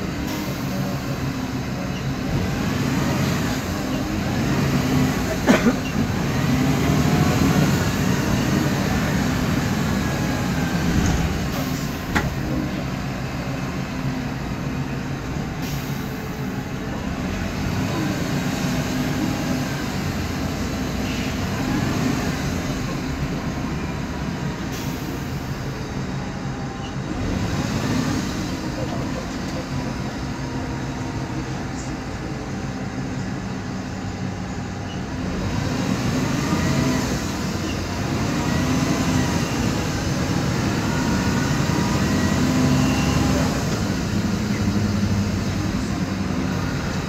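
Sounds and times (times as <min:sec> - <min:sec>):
bus driveline drone: 0:00.0 - 0:47.0.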